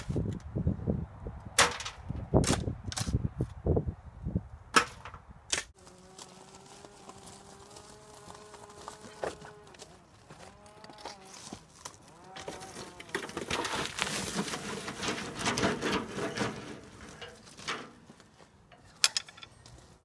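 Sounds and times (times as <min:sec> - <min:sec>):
soil pouring from a wheelbarrow: 0:13.1 - 0:17.4.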